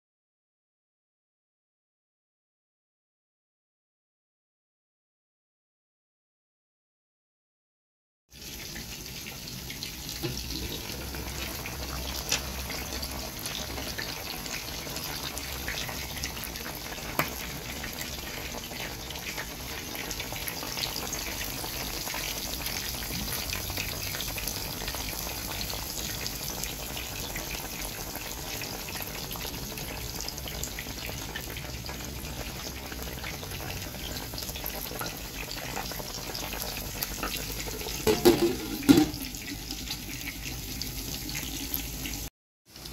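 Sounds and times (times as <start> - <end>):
broth bubbling in pot: 8.7 - 42.9.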